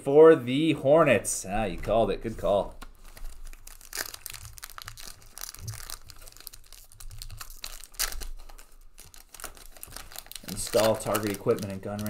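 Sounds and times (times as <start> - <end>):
foil wrapper crinkling: 2.7 - 12.0.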